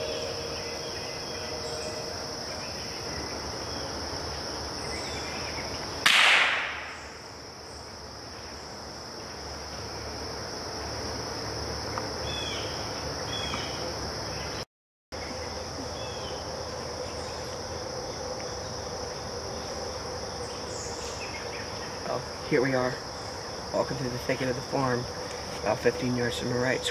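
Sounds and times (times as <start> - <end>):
insects chorus: 0.0 - 26.9
gunshot echoing: 6.1 - 7.1.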